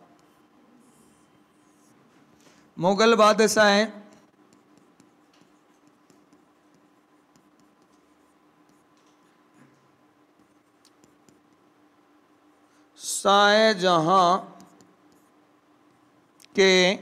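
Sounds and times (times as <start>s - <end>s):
faint steady hum: 0.0s - 17.0s
chalk scratching on blackboard: 0.1s - 2.0s, 4.1s - 9.0s, 10.3s - 11.7s.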